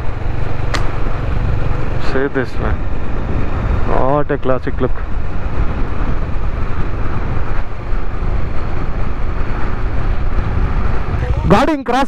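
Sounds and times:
wind on microphone: 0.0s - 11.8s
vehicle engine and road noise: 0.0s - 12.0s.

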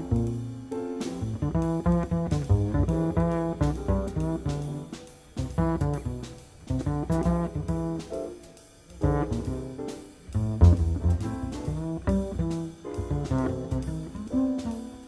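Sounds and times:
bass line: 0.0s - 8.4s, 9.0s - 15.0s
plucked string notes: 10.4s - 15.0s.

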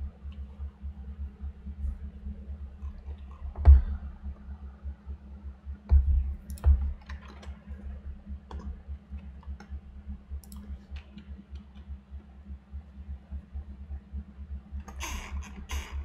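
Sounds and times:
steady low hum: 0.0s - 16.0s
heavier knocks: 3.5s - 4.1s, 5.9s - 7.0s
computer keyboard and mouse clicks: 6.4s - 9.8s, 10.4s - 12.0s.

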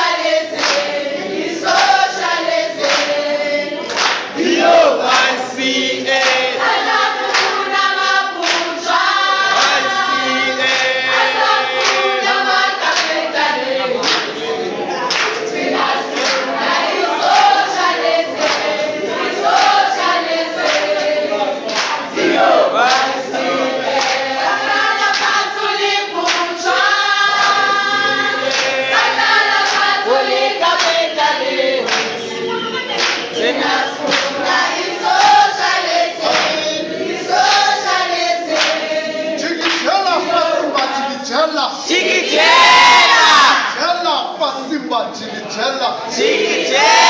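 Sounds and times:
hands clapping a beat: 0.0s - 41.0s
crowd singing in chorus: 0.0s - 43.8s, 44.6s - 47.0s.

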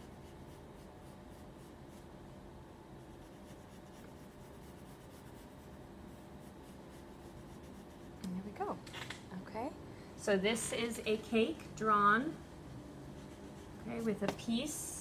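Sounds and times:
pencil scratching on paper: 0.0s - 2.1s, 3.0s - 8.2s.

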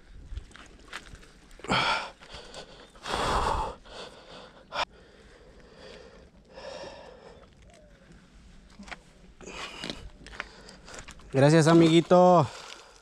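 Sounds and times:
man breathing hard: 1.6s - 8.5s.

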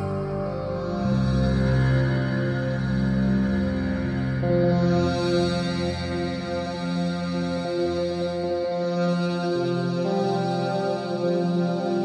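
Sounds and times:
ambient synthesizer drone: 0.0s - 12.0s.

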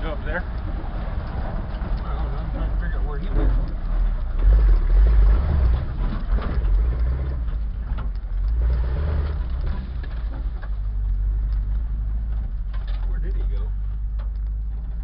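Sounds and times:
off-road vehicle engine rumble: 0.0s - 15.0s.

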